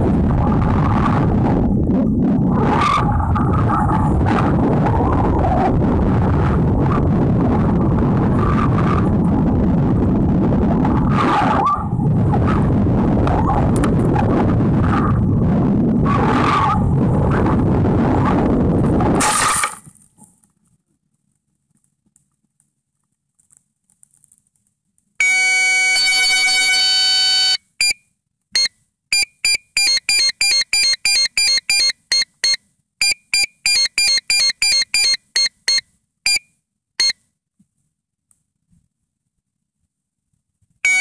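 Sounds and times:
electronic beeper tones: 0:25.2 - 0:28.0, 0:28.6 - 0:37.2.

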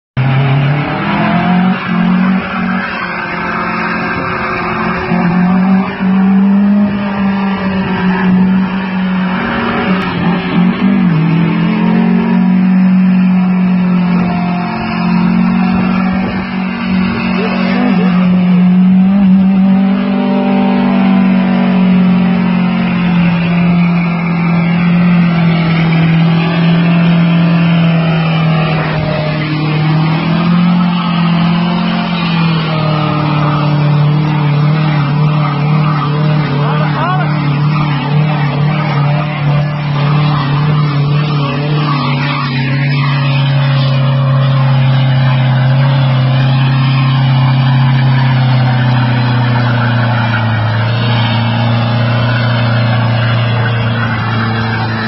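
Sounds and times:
car engine revving high: 0:00.2 - 0:55.0
tyres spinning on tarmac: 0:00.2 - 0:55.0.

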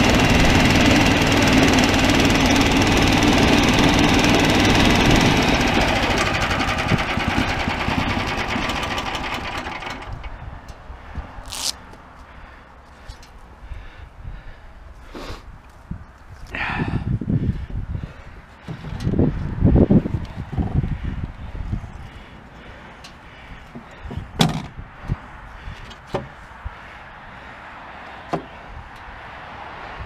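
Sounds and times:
small gasoline engine running: 0:00.0 - 0:10.3.

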